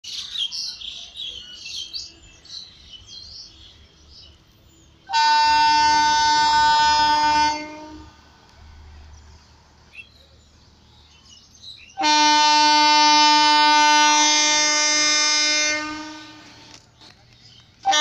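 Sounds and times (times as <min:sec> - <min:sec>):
birds chirping: 0:00.0 - 0:13.8, 0:16.2 - 0:18.0
train horn blast: 0:05.1 - 0:08.3, 0:12.0 - 0:16.7.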